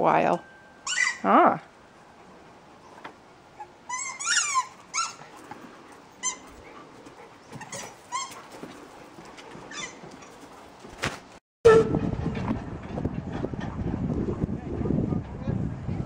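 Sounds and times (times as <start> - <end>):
dog whining: 0.8 - 1.3, 3.5 - 5.2, 7.5 - 8.5, 9.7 - 10.4.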